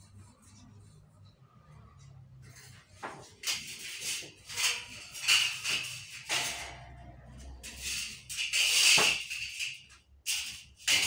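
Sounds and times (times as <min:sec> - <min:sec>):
band saw blade rattling and scraping: 0:03.2 - 0:11.0.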